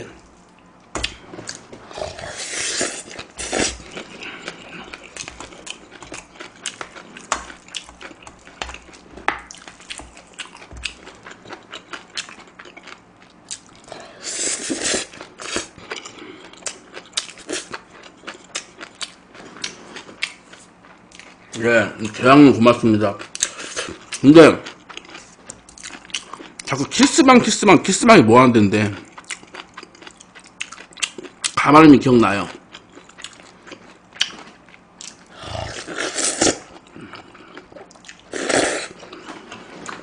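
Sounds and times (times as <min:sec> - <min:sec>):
chewing and mouth smacks: 0:02.9 - 0:13.9, 0:15.1 - 0:21.4, 0:29.0 - 0:31.6, 0:32.7 - 0:35.3, 0:36.4 - 0:40.0.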